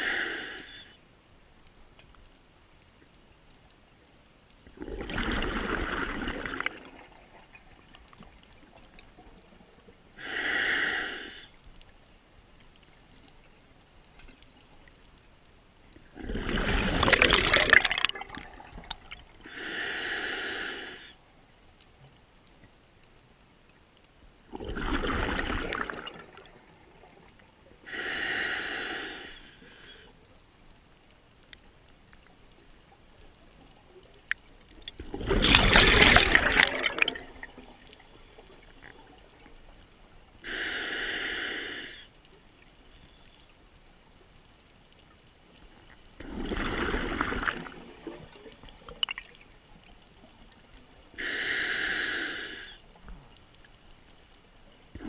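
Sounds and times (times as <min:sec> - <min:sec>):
regulator hissing inhale: 0:00.0 - 0:01.0, 0:10.2 - 0:11.6, 0:19.4 - 0:21.2, 0:27.8 - 0:30.2, 0:40.4 - 0:42.2, 0:51.2 - 0:52.9
exhaled bubbles rumbling: 0:04.7 - 0:09.5, 0:16.0 - 0:19.4, 0:24.5 - 0:27.4, 0:34.7 - 0:38.0, 0:46.2 - 0:49.5.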